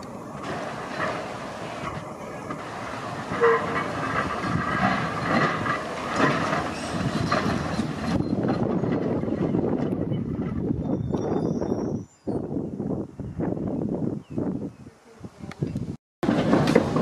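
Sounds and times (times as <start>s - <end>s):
tram rolling over track: 0.0s - 11.3s, 16.2s - 17.0s
wheels clunking over rail joints: 0.0s - 11.4s, 16.2s - 17.0s
high wavering wheel squeal: 2.1s - 12.5s.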